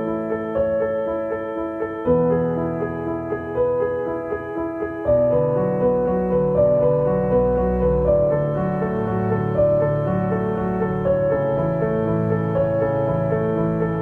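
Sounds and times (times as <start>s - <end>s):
piano chords: 0.0s - 14.0s.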